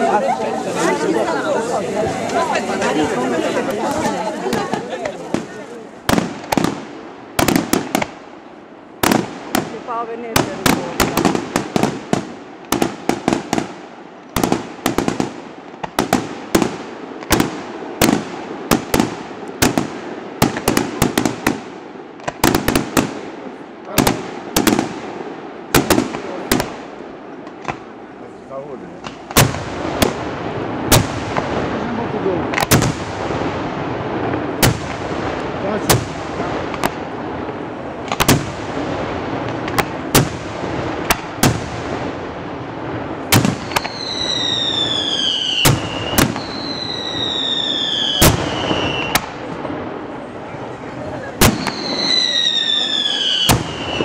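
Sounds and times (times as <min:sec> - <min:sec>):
fireworks bangs: 0:00.0 - 0:54.0
falling firework whistles: 0:43.6 - 0:49.2, 0:51.4 - 0:54.0.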